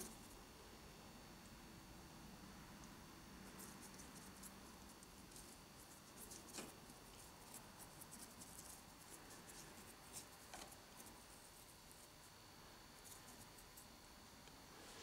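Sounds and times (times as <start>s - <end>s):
paintbrush scratching and ticking: 3.4s - 12.3s, 13.0s - 14.0s.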